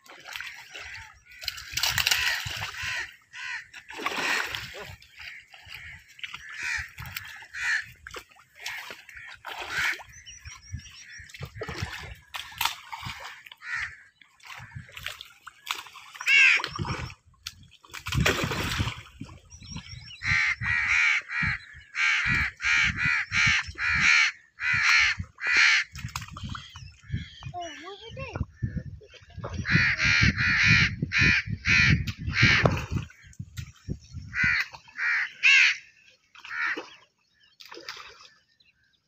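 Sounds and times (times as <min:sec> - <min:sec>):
water splashing: 0:00.0 - 0:20.6, 0:32.0 - 0:38.6
crows cawing: 0:02.2 - 0:03.8, 0:05.2 - 0:07.9, 0:13.6 - 0:14.1, 0:16.2 - 0:16.6, 0:34.3 - 0:36.9.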